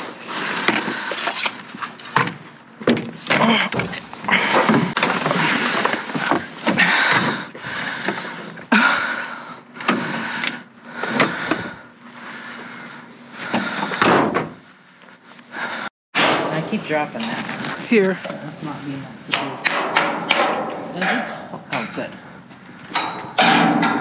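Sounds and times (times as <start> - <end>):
objects scraping and bumping: 0.0 - 8.7, 15.6 - 24.0
faint steady hum: 0.0 - 24.0.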